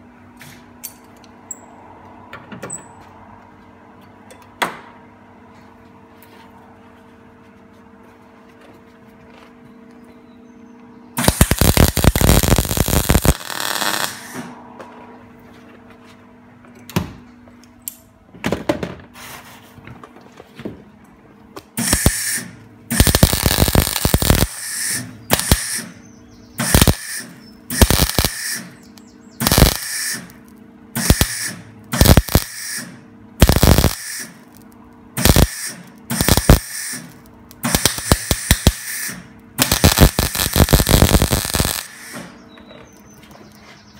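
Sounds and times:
welder arc crackling: 0:11.2 - 0:14.5, 0:21.8 - 0:25.9, 0:26.6 - 0:28.8, 0:29.4 - 0:42.3.

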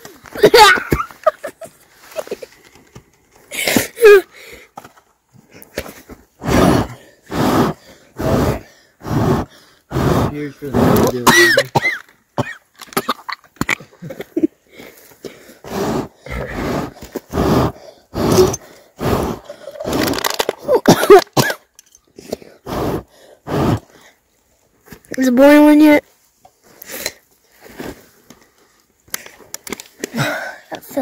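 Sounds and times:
person coughing and throat-clearing: 0:11.1 - 0:14.5, 0:20.6 - 0:22.5.

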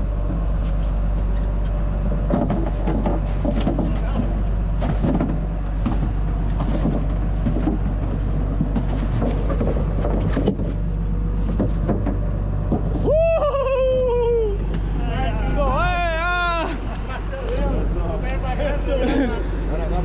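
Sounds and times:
boat engines droning: 0:00.0 - 0:20.0
long falling shout: 0:13.0 - 0:14.7, 0:15.7 - 0:16.8.

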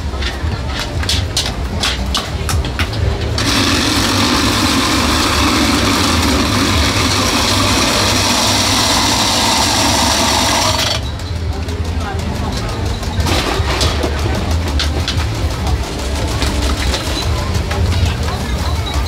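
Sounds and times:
small motor running: 0:03.4 - 0:11.1.

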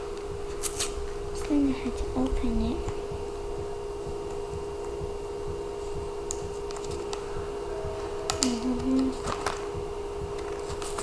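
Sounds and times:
plastic packaging clicking and crackling: 0:08.3 - 0:09.7.

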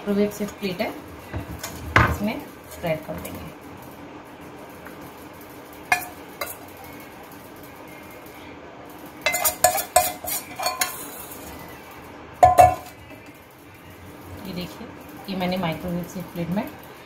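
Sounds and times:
metal spoon clinking on steel bowl: 0:05.9 - 0:06.6, 0:09.2 - 0:11.2, 0:12.4 - 0:13.0.

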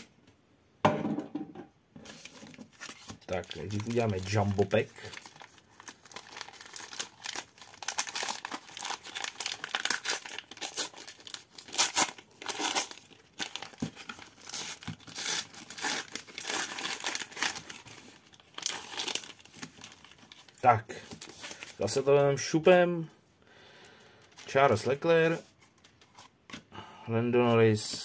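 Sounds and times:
wrapper tearing and crinkling: 0:02.1 - 0:21.9.

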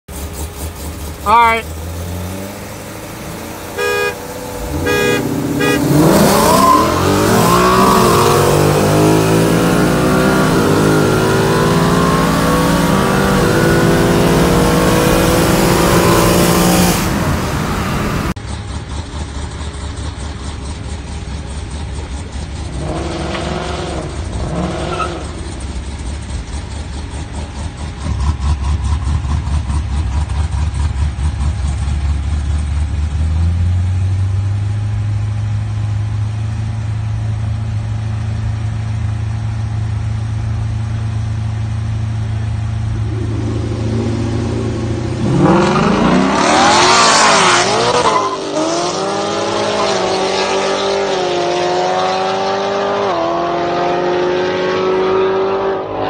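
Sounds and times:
car engine at full throttle: 0:00.0 - 0:56.0
engine revs: 0:00.1 - 0:20.7, 0:21.6 - 0:34.6, 0:42.5 - 0:56.0
engines idling: 0:00.1 - 0:46.7
car horn honks: 0:03.8 - 0:08.4.

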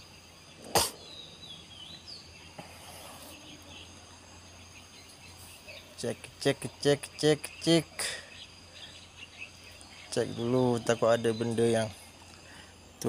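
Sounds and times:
high-pitched insect chorus: 0:00.0 - 0:13.0
sharp knock: 0:00.6 - 0:01.0.

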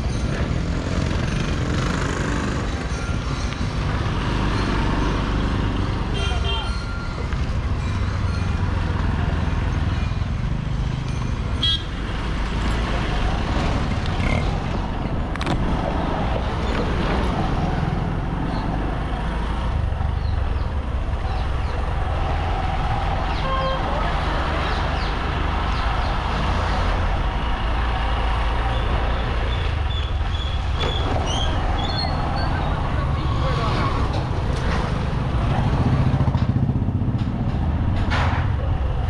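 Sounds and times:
motorcycle engine: 0:00.2 - 0:02.8, 0:28.7 - 0:38.7
vehicle horn toots: 0:06.1 - 0:06.8, 0:11.6 - 0:12.0.

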